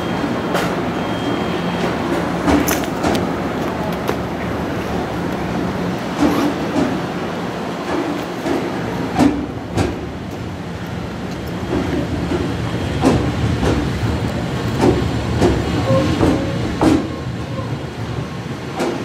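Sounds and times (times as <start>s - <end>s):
train running rumble: 0.0s - 19.0s
train wheels knocking on rail joints: 1.8s - 4.6s, 5.3s - 7.2s, 7.8s - 17.7s, 18.7s - 19.0s.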